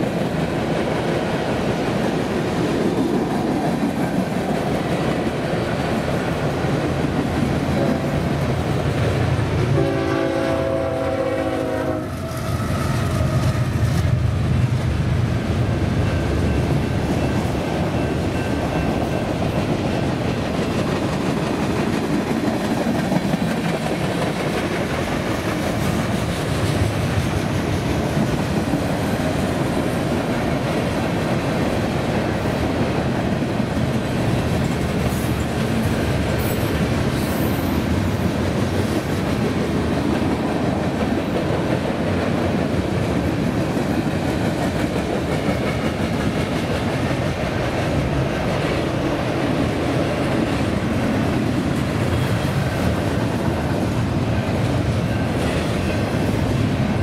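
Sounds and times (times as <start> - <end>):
freight train rumbling past: 0.0 - 57.0.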